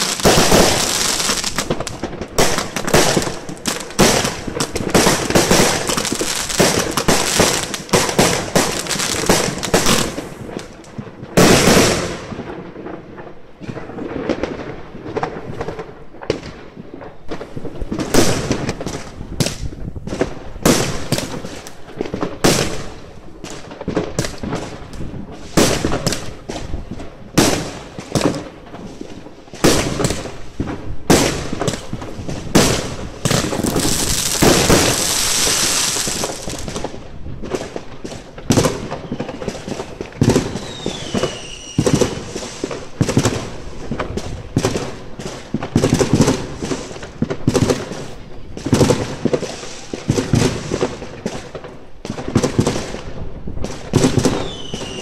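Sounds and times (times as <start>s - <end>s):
fireworks hissing: 0.0s - 10.8s, 32.7s - 36.8s, 40.6s - 43.0s
fireworks banging and popping: 0.0s - 55.0s.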